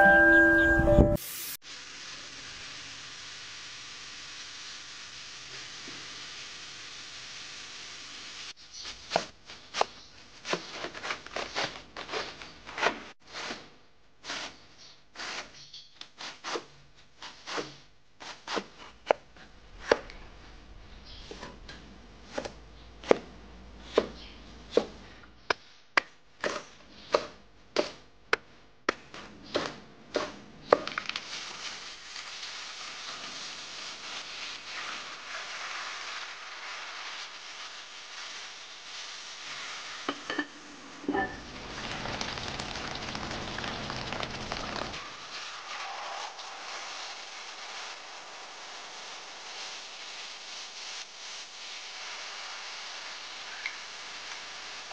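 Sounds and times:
food sizzling in hot pot: 0:00.0 - 0:09.8, 0:30.8 - 0:54.9.

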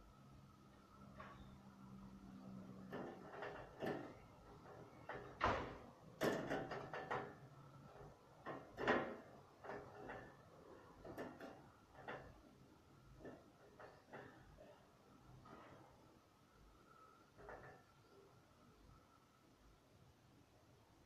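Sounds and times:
knocks and bumps of handling: 0:02.9 - 0:12.5.

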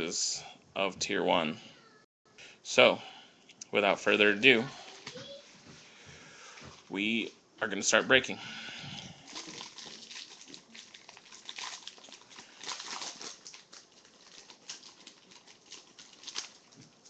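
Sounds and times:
foil wrapper crinkling: 0:09.1 - 0:17.0.

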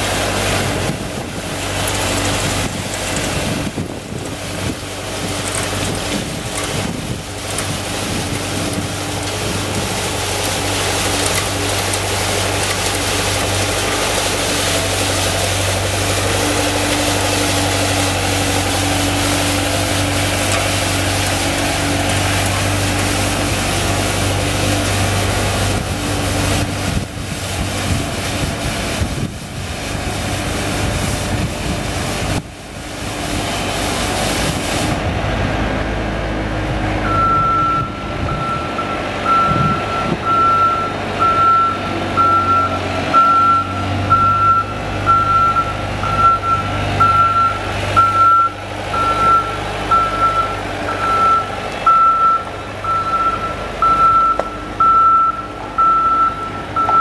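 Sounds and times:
diesel engine running: 0:00.0 - 0:57.0
backup alarm beeping: 0:37.1 - 0:57.0.

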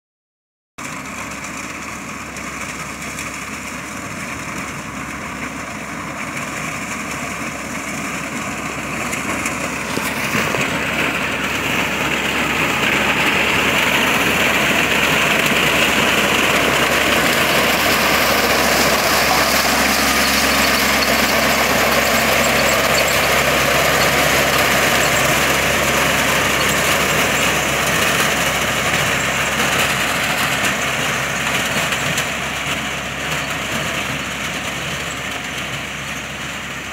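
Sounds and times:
tractor engine running: 0:00.8 - 0:36.9
reaper cutting maize: 0:09.0 - 0:32.2.

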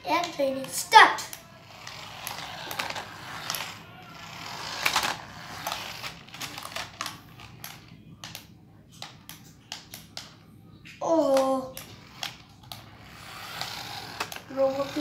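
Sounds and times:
toy car motor whirring: 0:00.0 - 0:07.9, 0:11.1 - 0:15.0.

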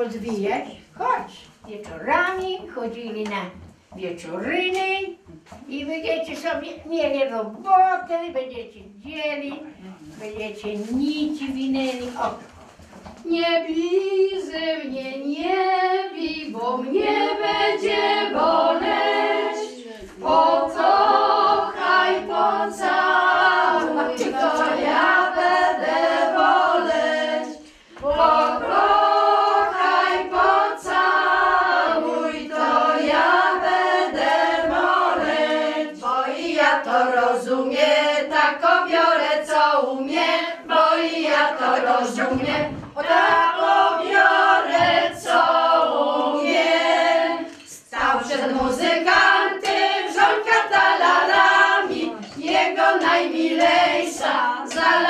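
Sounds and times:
women singing unaccompanied: 0:13.1 - 0:55.0.

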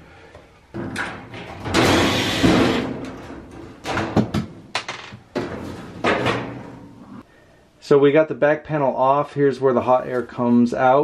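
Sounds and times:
metal knocks and clunks: 0:00.7 - 0:07.0
sheet metal scraping: 0:00.8 - 0:03.8.

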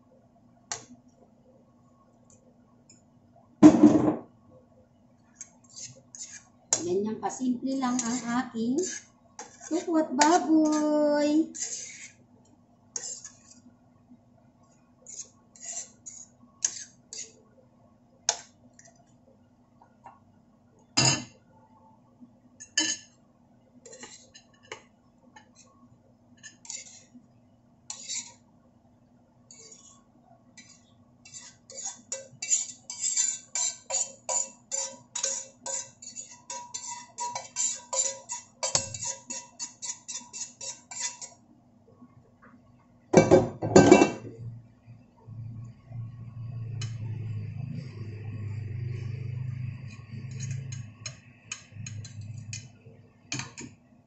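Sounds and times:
metal spoon scraping a pan: 0:05.4 - 0:12.2, 0:12.9 - 0:13.6, 0:15.0 - 0:17.4, 0:22.6 - 0:23.2, 0:23.8 - 0:25.7, 0:26.4 - 0:27.2, 0:27.9 - 0:28.4, 0:29.5 - 0:30.0, 0:30.6 - 0:41.4, 0:46.7 - 0:47.9, 0:48.9 - 0:53.7.

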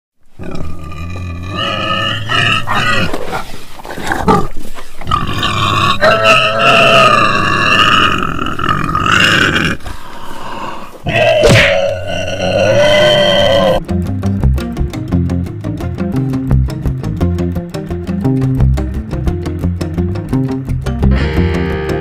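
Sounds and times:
loud animal calls: 0:05.1 - 0:13.8.

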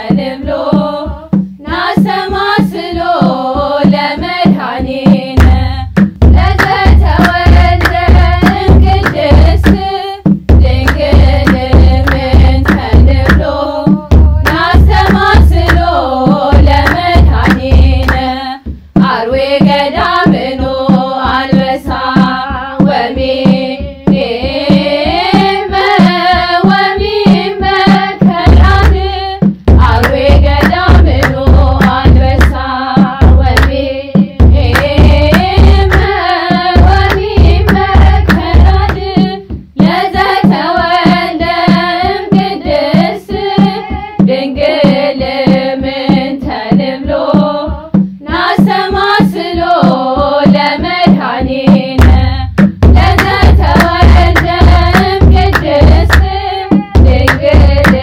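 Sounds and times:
drum beats: 0:00.0 - 0:58.0
girls' choir singing a hymn: 0:00.0 - 0:58.0
hand claps: 0:05.4 - 0:09.9, 0:10.8 - 0:13.5, 0:14.4 - 0:16.0, 0:16.8 - 0:18.3, 0:28.0 - 0:29.1, 0:30.0 - 0:32.7, 0:33.6 - 0:33.8, 0:34.7 - 0:39.2, 0:52.0 - 0:58.0.

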